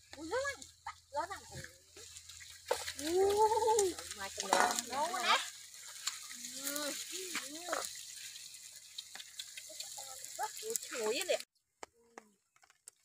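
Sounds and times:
people talking: 0:00.2 - 0:01.7, 0:03.0 - 0:05.5, 0:06.5 - 0:07.9, 0:09.7 - 0:11.4.

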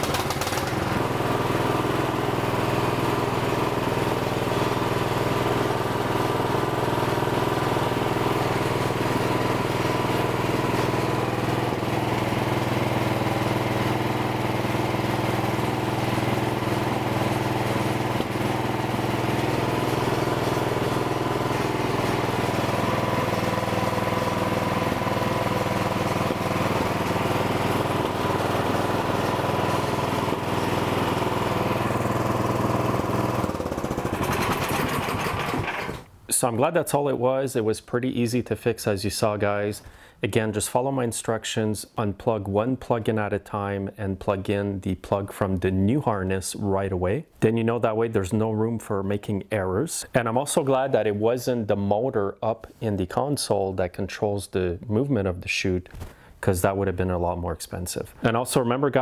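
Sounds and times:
snowblower engine running: 0:00.0 - 0:36.1, 0:39.8 - 0:40.2.

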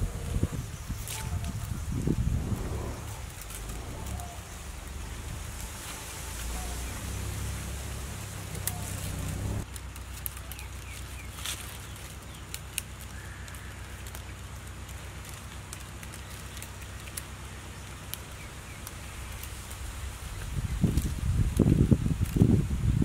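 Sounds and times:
low rumble: 0:00.0 - 0:10.0
vine strips crackling against basket: 0:00.0 - 0:23.0.

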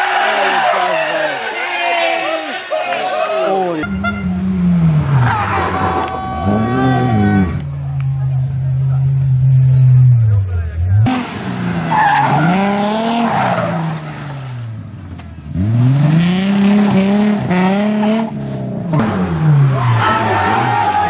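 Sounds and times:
rally car engine revving: 0:03.8 - 0:21.0.

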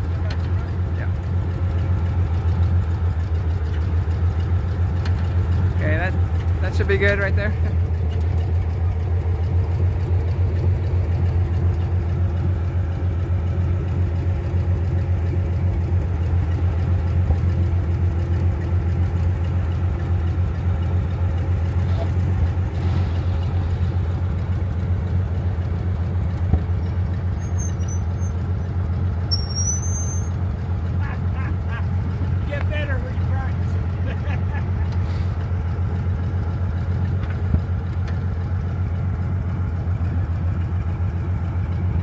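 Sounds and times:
forklift engine droning: 0:00.0 - 0:42.0
short high chirps: 0:29.3 - 0:30.3.

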